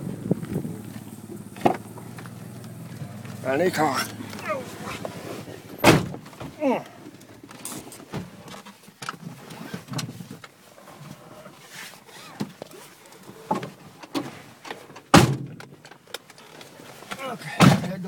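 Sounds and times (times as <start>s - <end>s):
car door shutting: 0.1s - 6.6s, 15.1s - 15.7s
handling clicks and knocks: 0.2s - 10.6s.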